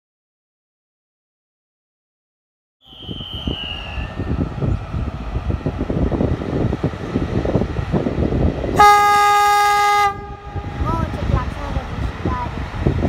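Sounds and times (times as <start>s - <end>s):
low uneven rumble: 3.5s - 9.1s, 9.8s - 13.0s
locomotive horn blast: 8.8s - 11.0s.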